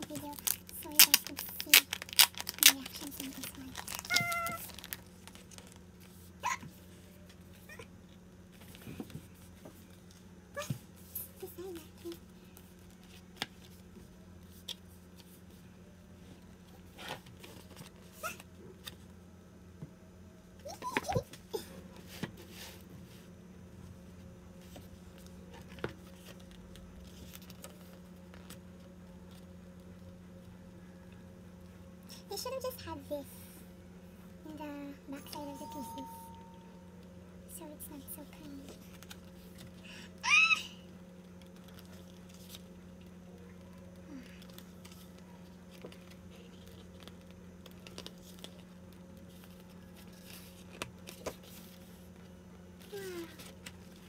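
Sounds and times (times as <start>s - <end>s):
photo pages rustling: 0.0s - 6.3s, 41.4s - 43.5s, 44.1s - 54.0s
low steady hum: 0.0s - 54.0s
paper pages rustling: 24.6s - 29.4s, 44.1s - 52.2s
low hum: 33.0s - 54.0s.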